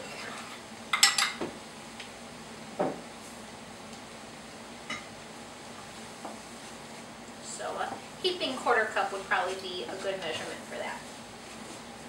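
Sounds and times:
dull knock: 2.8s - 3.0s.

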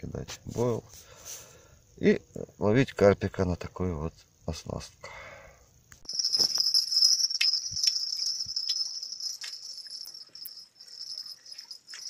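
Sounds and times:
crickets chirring: 6.1s - 12.0s.

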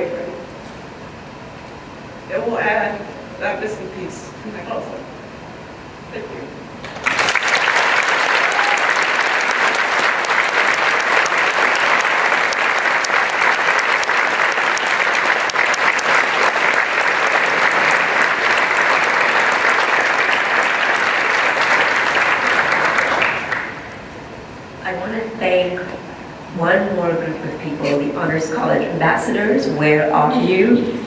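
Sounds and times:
audience applause: 6.8s - 24.0s.

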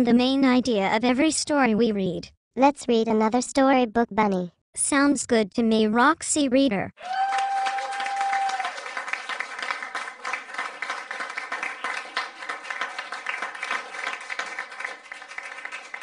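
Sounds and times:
applause: 7.0s - 16.0s.

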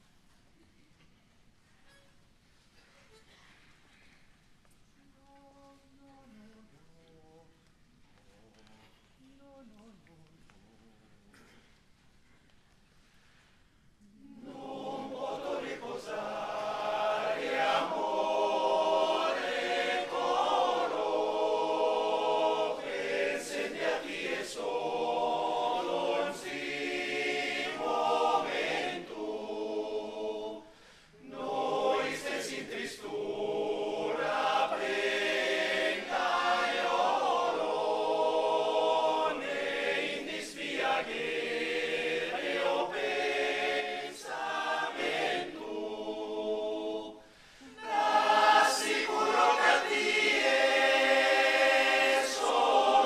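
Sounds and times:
men's choir singing a cappella: 14.3s - 53.0s.

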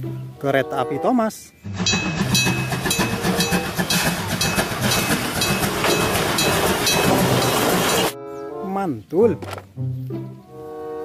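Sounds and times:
steam hiss: 1.7s - 8.2s
train wheels clacking on rail joints: 1.7s - 8.2s
level crossing bell ringing: 1.8s - 8.2s.

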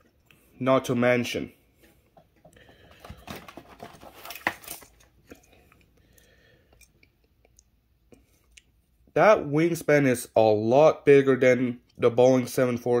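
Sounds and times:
plastic packaging crinkling: 2.9s - 5.2s.

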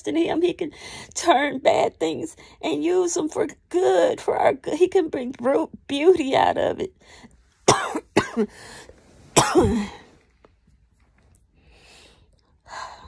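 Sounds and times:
faint breath: 11.6s - 13.0s.

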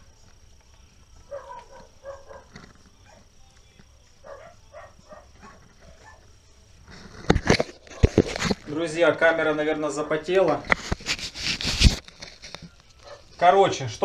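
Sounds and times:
faint dog barking: 1.2s - 3.4s, 4.2s - 6.4s, 13.0s - 13.4s.

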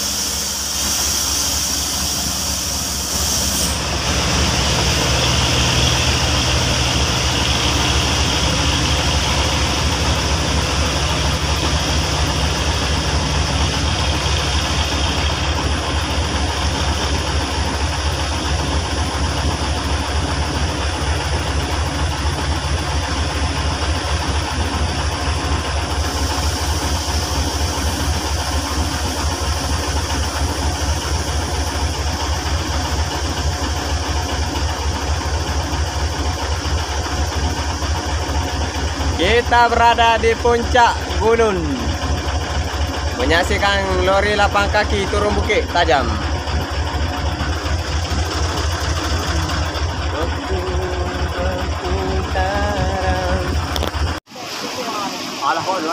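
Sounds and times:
heavy engine idling: 0.0s - 55.9s.

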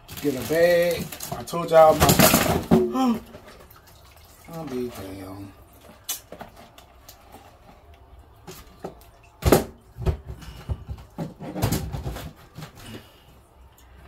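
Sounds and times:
cupboard knocks and clatters: 1.3s - 3.2s, 9.4s - 12.8s.

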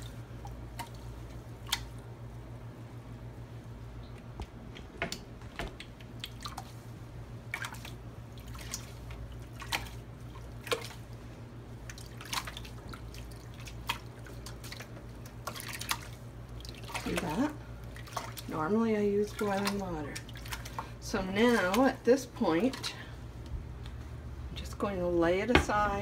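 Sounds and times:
liquid dripping and splashing: 0.0s - 2.1s, 5.6s - 23.1s
steady low hum: 0.0s - 26.0s.

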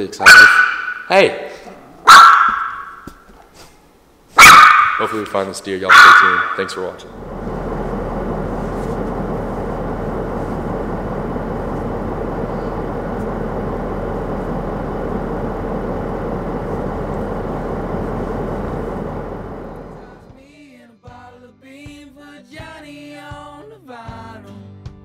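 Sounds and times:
vehicle engine and road noise: 6.0s - 20.3s.

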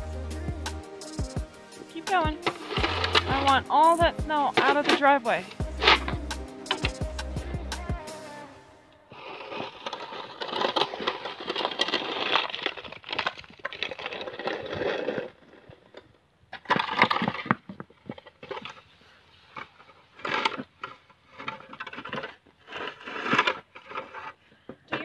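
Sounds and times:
plastic shovel scraping snow: 1.6s - 7.3s, 9.0s - 15.4s, 18.6s - 25.0s.

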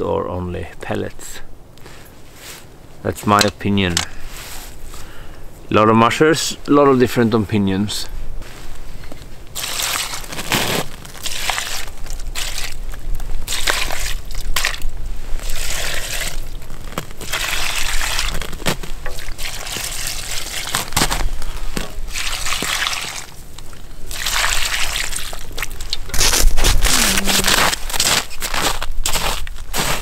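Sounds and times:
water pouring into steel bowls: 19.1s - 20.7s, 22.1s - 23.4s, 24.1s - 26.0s.

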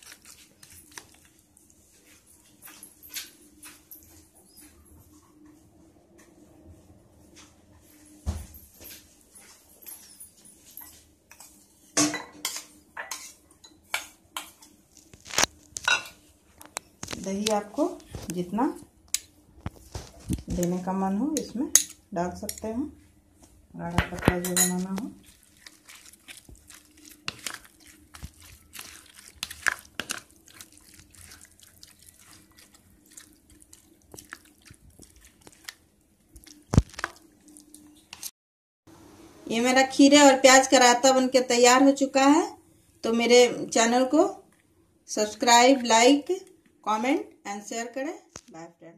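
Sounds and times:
wet squelching of yogurt: 0.0s - 2.0s, 24.8s - 38.3s
spoon scraping plastic bowl: 24.1s - 35.8s.

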